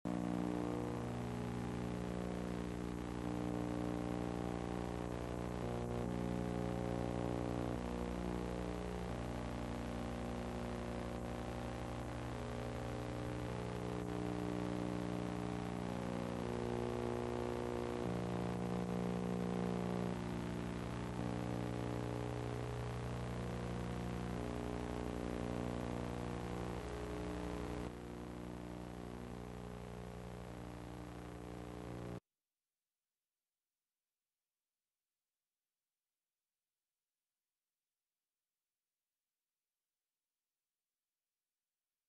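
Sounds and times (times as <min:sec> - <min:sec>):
steady electrical hum: 0:00.1 - 0:32.2.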